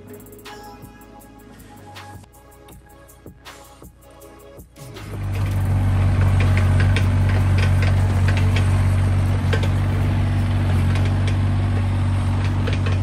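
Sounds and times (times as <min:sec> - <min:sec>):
diesel engine humming: 0:04.0 - 0:13.0.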